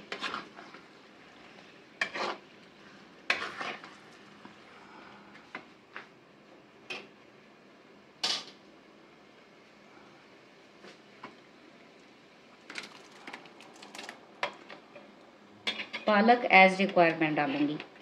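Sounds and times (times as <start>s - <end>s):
faint sizzle: 0.0s - 18.0s
spoon scraping a cooking pot: 0.1s - 0.8s, 2.0s - 2.4s, 3.3s - 4.0s.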